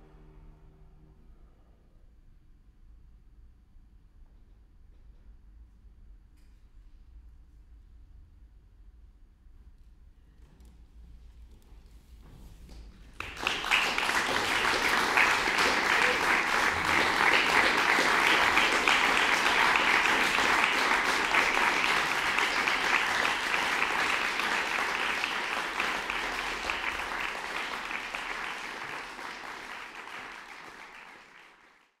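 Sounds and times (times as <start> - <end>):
audience applauding: 13.2 - 32.0.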